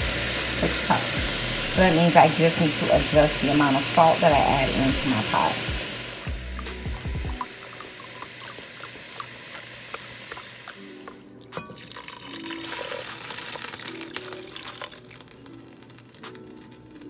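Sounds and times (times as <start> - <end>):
broth splashing into pot: 0.0 - 17.0
broth pouring into glass cup: 4.4 - 17.0.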